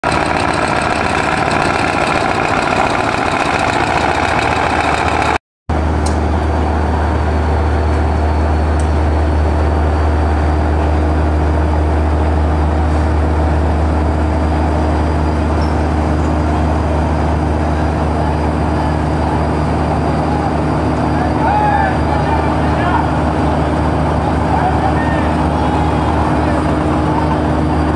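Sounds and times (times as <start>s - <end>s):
diesel engine drone: 0.0s - 27.9s.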